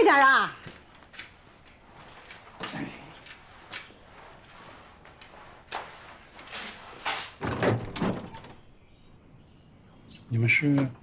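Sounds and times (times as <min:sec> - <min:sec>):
footsteps on wooden floor: 0:00.6 - 0:07.6
door unlatched and pulled open: 0:07.4 - 0:08.7.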